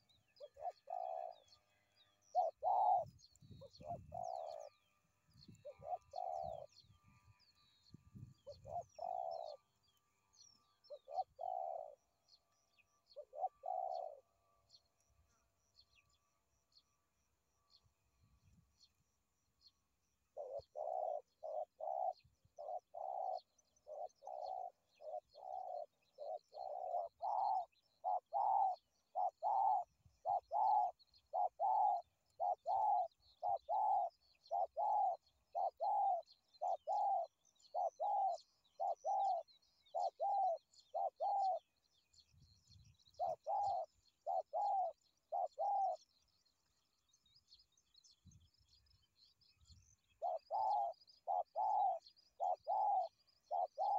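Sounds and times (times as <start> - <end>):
dove cooing: 0.0 - 1.5, 2.3 - 4.8, 5.4 - 6.9, 8.4 - 9.7, 10.9 - 12.2, 13.1 - 14.3, 20.3 - 41.7, 43.2 - 46.0, 50.2 - 53.9
small birds chirping: 0.0 - 53.9.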